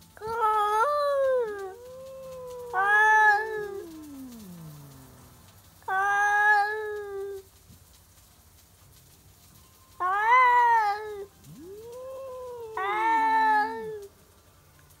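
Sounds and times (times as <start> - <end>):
cat moaning: 0.2 - 7.5, 10.0 - 14.1
cats yowling: 0.2 - 7.5, 10.0 - 14.1.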